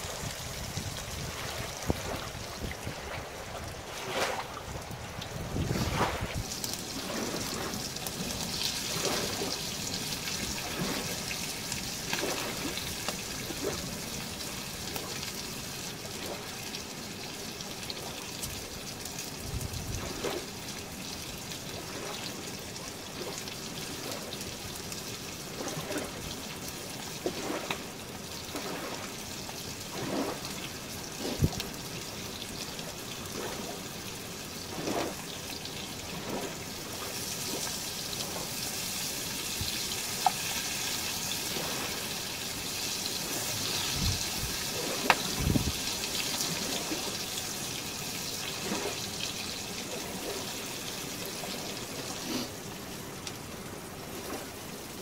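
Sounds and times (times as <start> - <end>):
food sizzling in a frying pan: 37.2 - 46.3.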